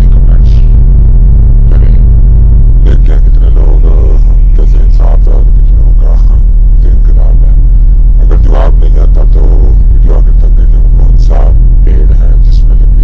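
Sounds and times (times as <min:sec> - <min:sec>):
loud low droning rumble: 0:00.0 - 0:13.0
short voice-like sounds: 0:01.6 - 0:02.2.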